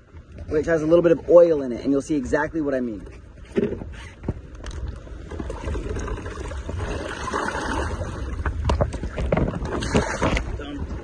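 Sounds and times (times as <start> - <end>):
seawater splashing: 5.1 - 11.0.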